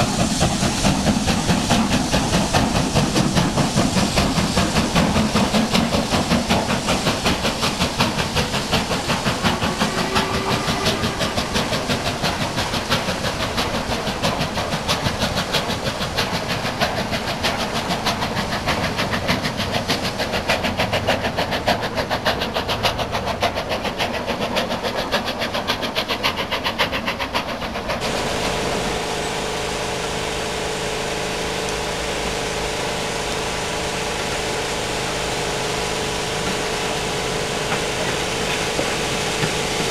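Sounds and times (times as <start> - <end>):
steam hiss: 0.0 - 39.9
steam locomotive exhaust beat: 0.0 - 39.9
train wheel clatter: 0.0 - 39.9
steady low hum: 28.0 - 39.9.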